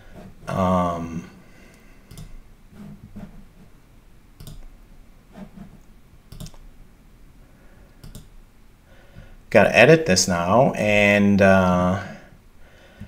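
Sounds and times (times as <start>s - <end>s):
computer mouse clicking: 2.1s - 2.4s, 4.4s - 4.7s, 5.8s - 6.7s, 7.9s - 8.3s.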